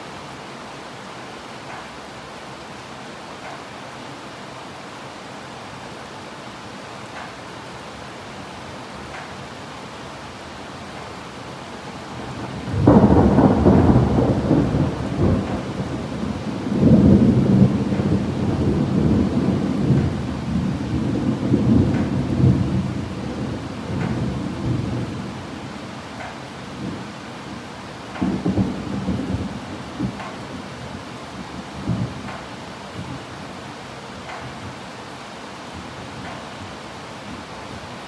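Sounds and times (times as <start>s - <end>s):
steady rain: 0.0s - 38.0s
thunder rumbling: 12.2s - 25.8s, 26.7s - 33.3s.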